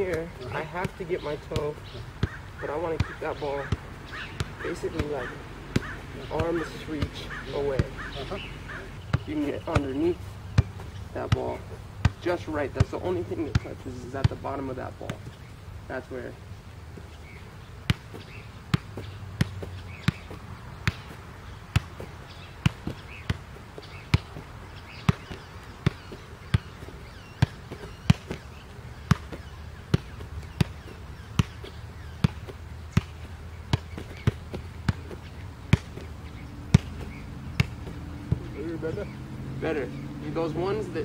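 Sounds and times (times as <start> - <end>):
ball kicked sharp thuds: 0.0 - 15.4, 16.1 - 39.2.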